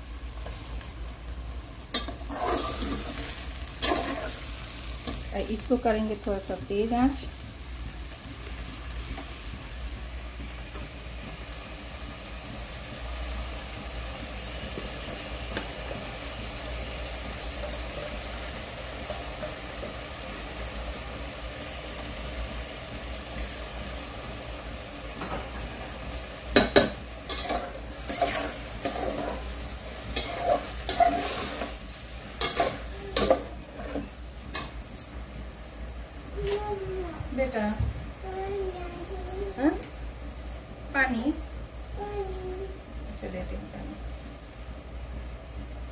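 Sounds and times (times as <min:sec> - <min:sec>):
rice sizzling in pot: 0:00.0 - 0:45.9
utensils clanking and scraping pot: 0:00.3 - 0:09.4, 0:12.5 - 0:22.3, 0:24.7 - 0:35.4.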